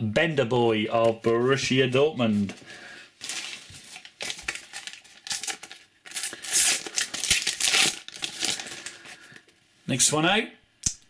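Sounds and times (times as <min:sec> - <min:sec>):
packet tearing open: 0:03.2 - 0:09.4
wrapper crinkling: 0:03.2 - 0:09.5.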